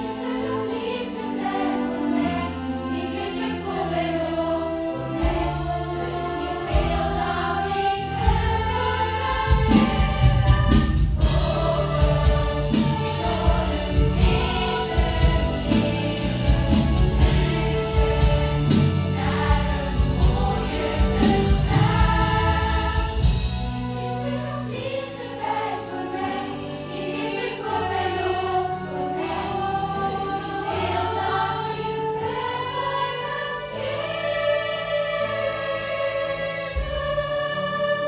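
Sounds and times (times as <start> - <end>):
orchestral accompaniment: 0.0 - 38.0
youth choir singing: 0.0 - 38.0
drums: 1.1 - 38.0.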